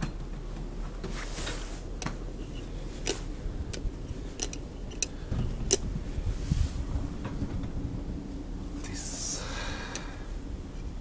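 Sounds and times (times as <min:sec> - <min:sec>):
elevator humming: 0:00.0 - 0:11.0
sharp clicks and ticks: 0:03.0 - 0:05.1.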